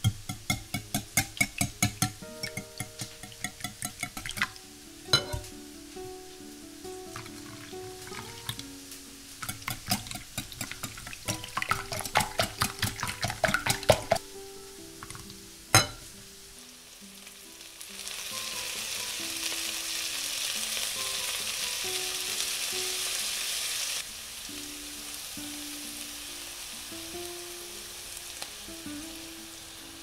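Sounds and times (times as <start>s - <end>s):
whisk clicking against glass bowl: 0.0s - 4.5s, 9.4s - 14.2s
vegetables sizzling in a frying pan: 0.0s - 30.0s.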